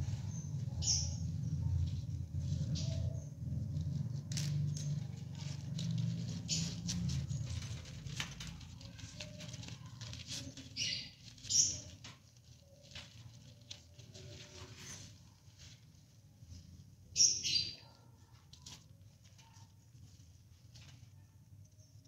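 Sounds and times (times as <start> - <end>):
bird claws scratching in a pot: 2.6 - 16.0
high bird chirps: 17.2 - 18.0.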